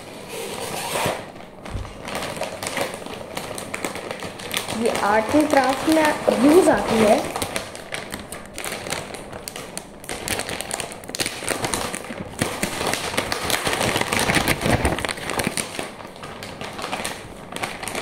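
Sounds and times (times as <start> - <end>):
plastic bag crinkling: 0.2 - 18.0.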